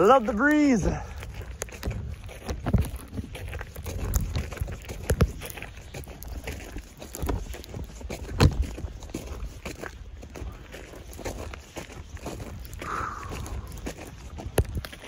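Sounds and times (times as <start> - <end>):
footsteps in snow: 0.0 - 15.0
wind rumbling on microphone: 0.0 - 15.0.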